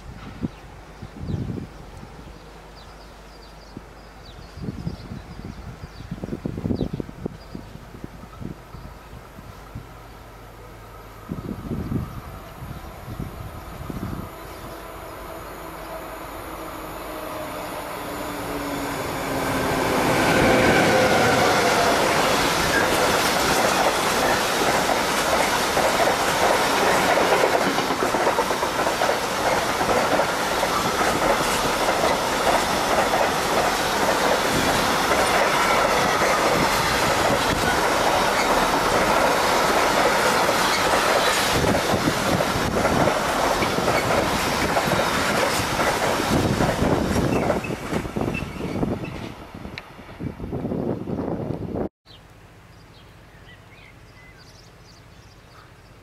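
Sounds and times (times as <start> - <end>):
freight train passing: 0.0 - 51.9
locomotive whine: 8.4 - 51.9
wheels clattering over rails: 19.2 - 49.3
wheel squeal: 47.2 - 49.3.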